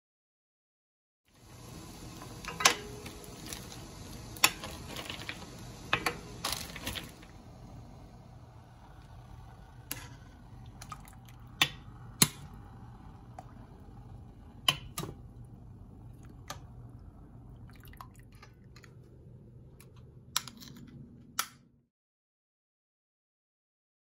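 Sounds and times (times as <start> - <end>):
low steady hum: 1.4 - 21.8
water dripping: 16.0 - 18.9.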